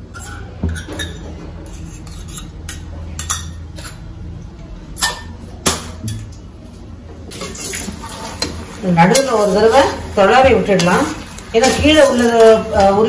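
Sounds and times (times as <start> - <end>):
utensils clinking against metal bowls: 0.0 - 4.1, 7.3 - 13.0
low steady hum: 0.0 - 13.0.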